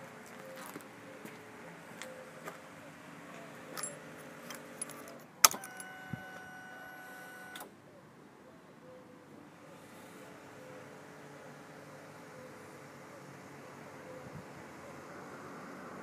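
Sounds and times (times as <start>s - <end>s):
fuel pump electric whine: 1.1s - 7.8s.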